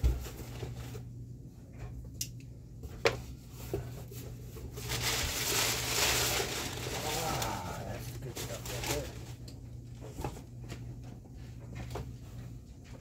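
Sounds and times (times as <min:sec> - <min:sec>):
packing paper rustling: 0:04.6 - 0:09.5.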